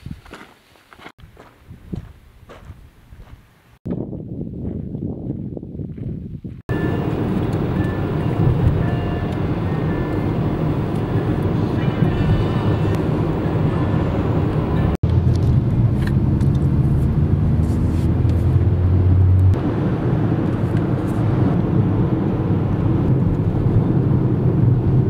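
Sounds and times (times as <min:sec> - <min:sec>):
car engine and road noise: 0:06.7 - 0:25.0.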